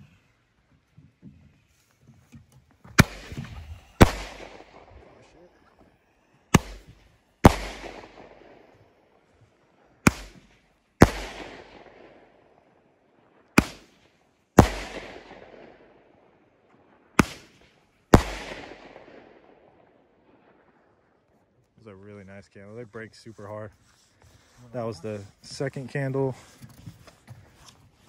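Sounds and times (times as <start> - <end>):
roman candle shot popping: 6.5 - 8.3, 10.1 - 11.8.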